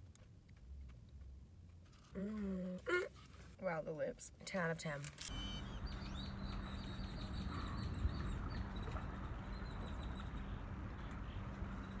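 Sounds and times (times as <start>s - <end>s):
low hum and rumble: 5.1s - 12.0s
small birds chirping: 5.3s - 12.0s.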